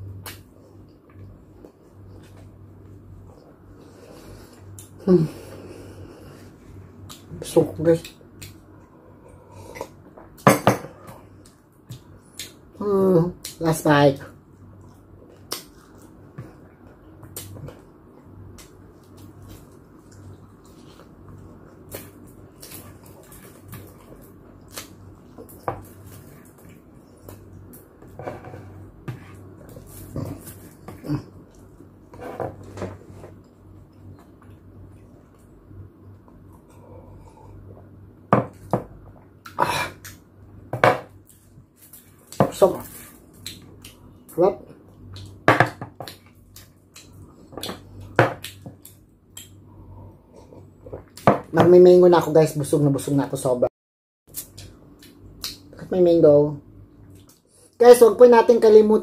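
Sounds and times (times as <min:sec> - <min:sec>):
faint low hum: 0:00.0 - 0:53.7
chewing crunchy food: 0:14.8 - 0:27.9, 0:41.2 - 0:51.2.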